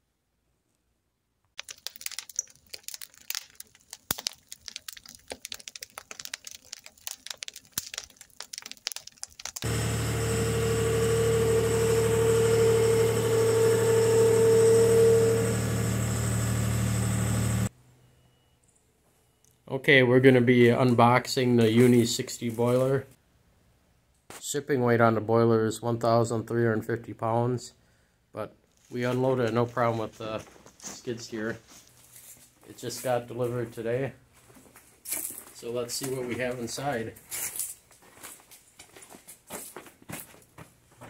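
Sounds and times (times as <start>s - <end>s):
fire popping: 1.6s - 10.0s
wood fire crackling: 1.6s - 10.2s
engine running: 9.5s - 17.7s.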